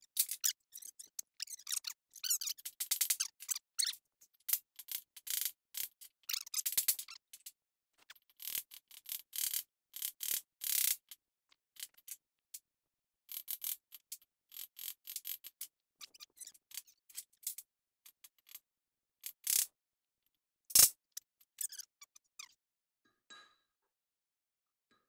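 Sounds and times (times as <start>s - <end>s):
small metal parts clicking and scraping: 0.1s - 7.5s, 20.7s - 20.9s.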